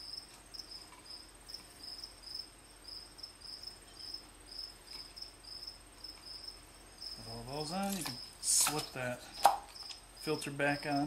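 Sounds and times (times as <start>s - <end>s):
cricket chirping: 0.0s - 11.0s.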